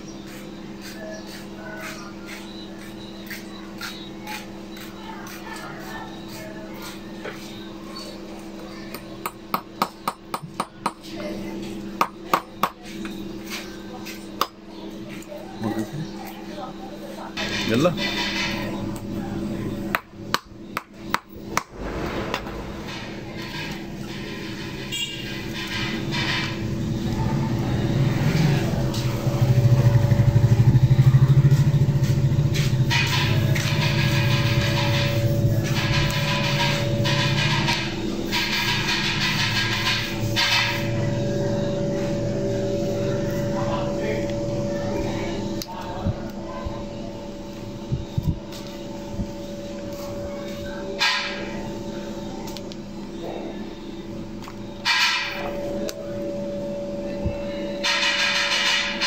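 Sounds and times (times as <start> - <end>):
low hum: 21.3 - 25.0, 26.6 - 54.8.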